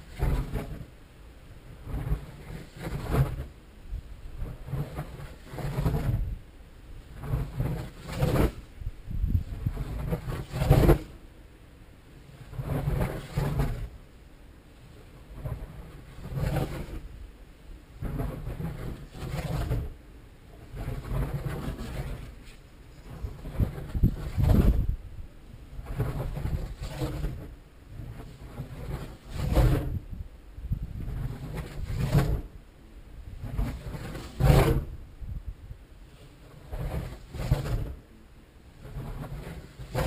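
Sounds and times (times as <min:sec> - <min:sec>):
wind rumble on microphone: 0:00.0 - 0:40.0
glider rushing past: 0:25.8 - 0:30.2, 0:30.8 - 0:32.6, 0:33.2 - 0:35.1, 0:36.1 - 0:38.0.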